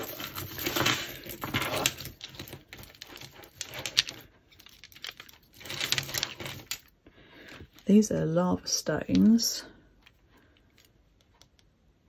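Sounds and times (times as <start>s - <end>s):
jewellery chains and beads clinking: 0.0s - 7.0s.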